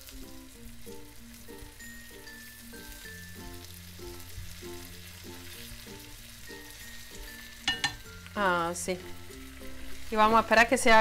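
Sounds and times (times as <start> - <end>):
chicken sizzling in butter: 0.0 - 11.0
light background music: 0.0 - 11.0.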